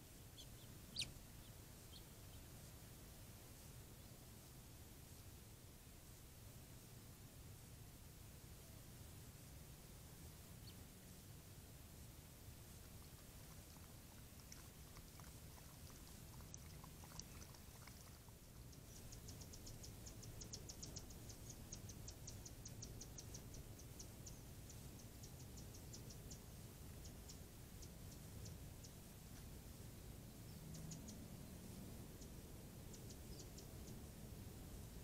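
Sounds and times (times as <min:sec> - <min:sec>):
animal lapping water: 0:12.8 - 0:18.6.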